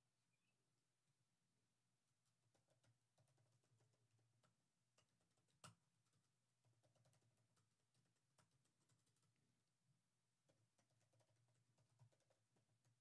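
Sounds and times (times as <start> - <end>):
faint computer keyboard typing: 2.1 - 9.6, 10.3 - 13.0.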